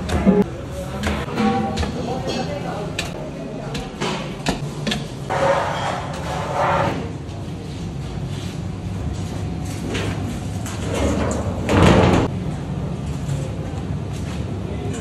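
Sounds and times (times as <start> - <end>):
steel lid scraping on concrete: 5.3 - 6.9.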